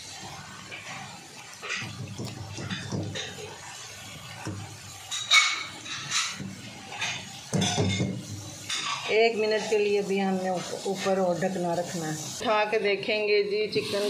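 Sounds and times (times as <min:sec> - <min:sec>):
spatula scraping wok: 0:02.6 - 0:12.5, 0:13.6 - 0:14.0.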